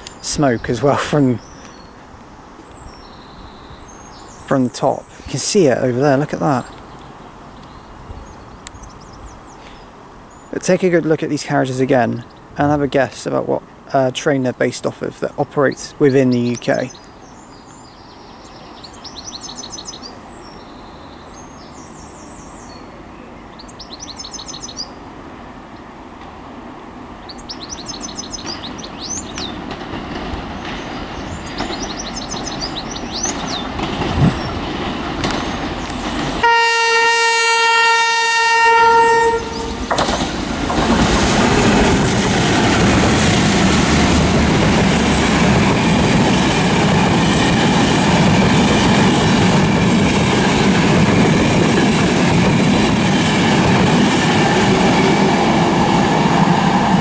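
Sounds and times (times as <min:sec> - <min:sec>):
birds chirping: 0:00.0 - 0:36.4, 0:39.3 - 0:42.2
diesel locomotive engine: 0:00.0 - 0:57.0
wheels clattering on rails: 0:27.3 - 0:36.5, 0:39.8 - 0:57.0
train horn blast: 0:36.4 - 0:39.9.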